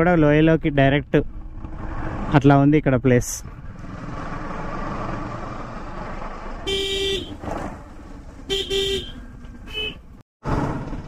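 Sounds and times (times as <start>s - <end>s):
motorcycle riding: 0.0s - 11.0s
vehicle horn honking: 6.6s - 7.4s, 8.5s - 10.0s.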